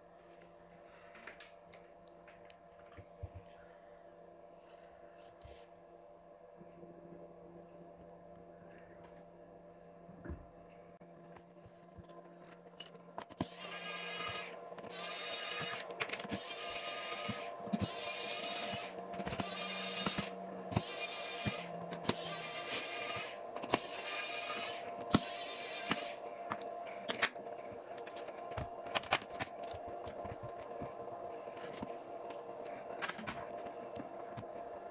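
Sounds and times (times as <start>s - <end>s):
low steady hum: 0.0s - 34.9s
electric screwdriver running: 13.4s - 26.2s.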